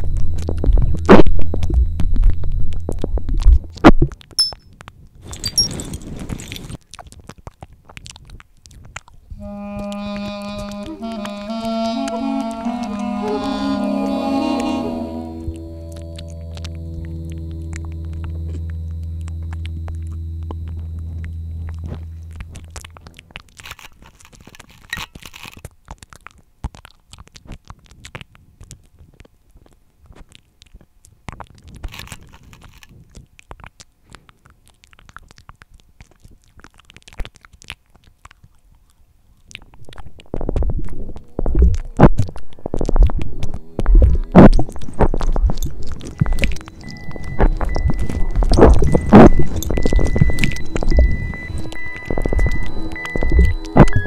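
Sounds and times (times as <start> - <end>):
low droning tone: 0.0 - 4.6, 9.3 - 23.9, 39.9 - 54.0.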